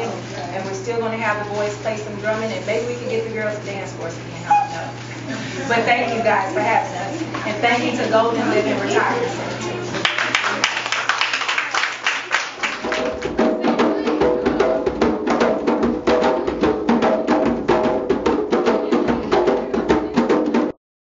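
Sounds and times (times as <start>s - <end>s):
fast hand drumming: 10.0s - 20.8s.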